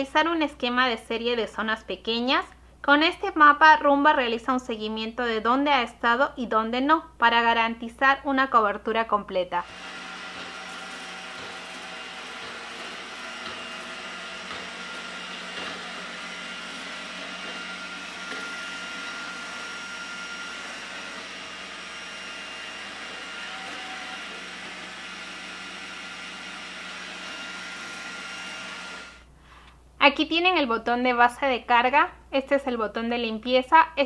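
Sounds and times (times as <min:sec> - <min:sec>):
robot vacuum running: 0:09.6 - 0:29.2.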